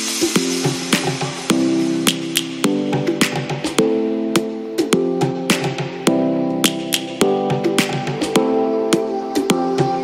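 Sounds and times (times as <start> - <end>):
background music with sustained notes: 0.0 - 10.0.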